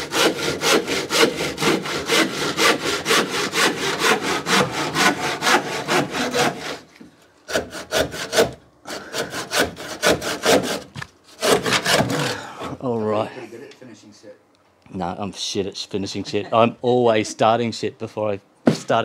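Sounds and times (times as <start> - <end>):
hand saw cutting timber: 0.0 - 6.9, 7.5 - 12.4.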